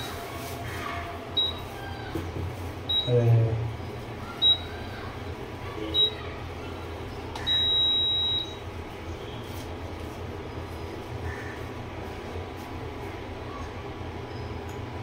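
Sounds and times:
cooktop control beeps: 1.4 - 1.7, 2.9 - 3.3, 4.4 - 4.8, 5.8 - 6.2, 7.4 - 8.7.

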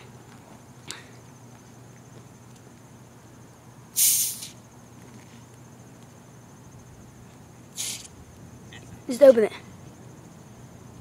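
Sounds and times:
carbonation hissing from bottle: 4.0 - 4.6, 7.8 - 8.1.

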